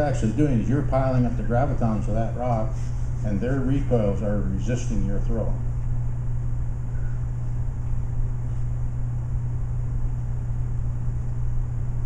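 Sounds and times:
low room hum and rumble: 0.0 - 12.0.

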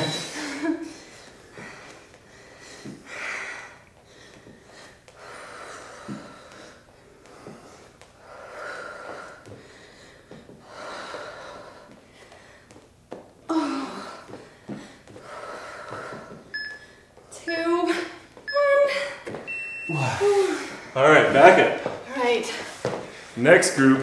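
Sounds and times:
person breathing heavily: 0.0 - 12.9, 13.5 - 16.5, 19.9 - 21.0.

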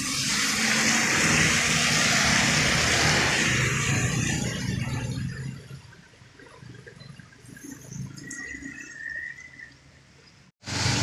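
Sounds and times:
tyres hissing on wet road: 0.0 - 4.6, 10.6 - 11.0
van engine hum: 10.6 - 11.0.

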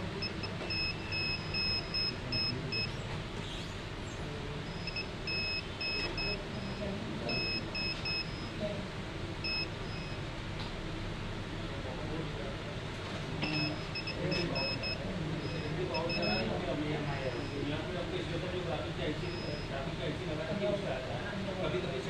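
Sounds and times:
multimeter continuity beeps: 0.0 - 3.0, 4.6 - 8.8, 9.4 - 10.3, 13.4 - 17.9, 18.6 - 19.9.

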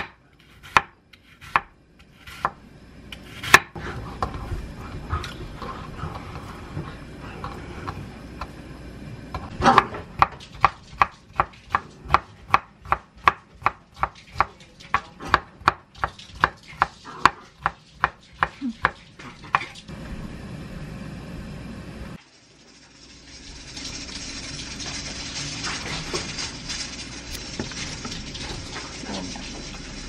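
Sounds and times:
knife chopping on wooden board: 0.0 - 2.6, 3.2 - 4.4, 9.6 - 19.0.

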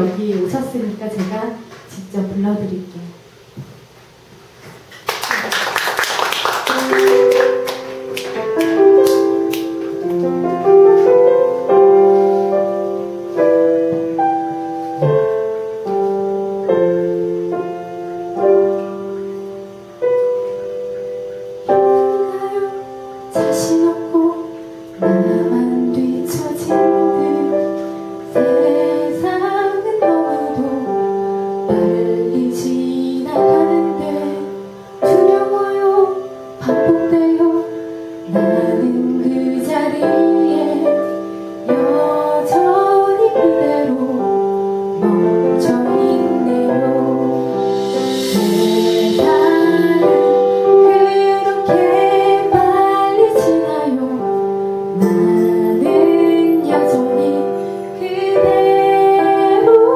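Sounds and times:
slow piano accompaniment: 0.0 - 59.9
woman singing a gentle ballad: 21.9 - 59.9.

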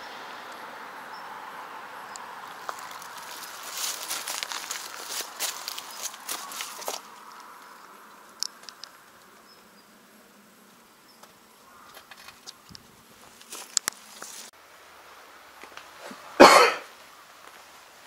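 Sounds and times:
light clicks and ticks: 8.4 - 9.3.

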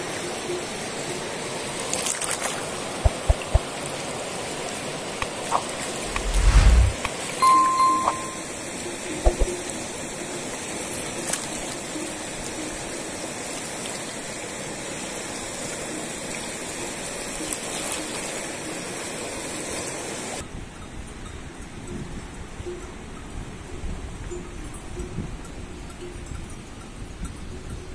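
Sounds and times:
river rushing: 0.8 - 8.4.

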